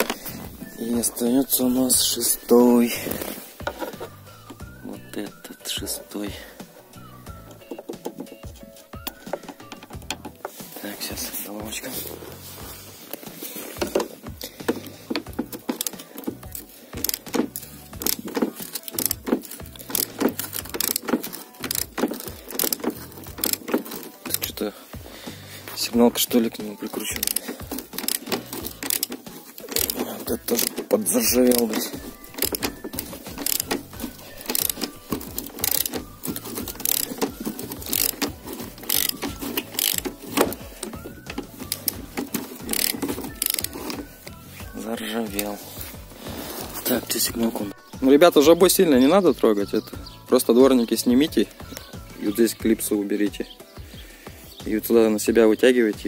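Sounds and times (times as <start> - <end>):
socket ratchet clicking: 7.3 - 10.5, 13.8 - 24.6, 27.0 - 44.4.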